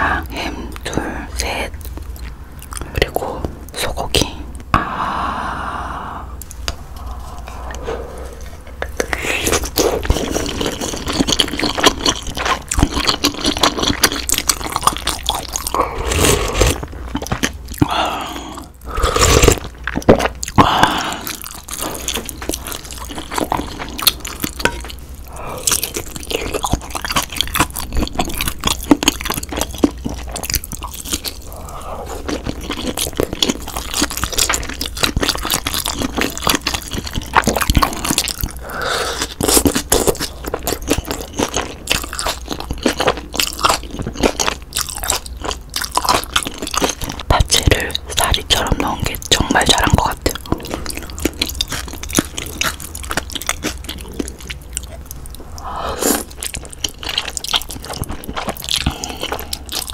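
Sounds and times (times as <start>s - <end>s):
chewing with wet mouth clicks: 0.3s - 3.3s, 8.4s - 17.9s, 19.4s - 38.6s, 39.2s - 59.9s.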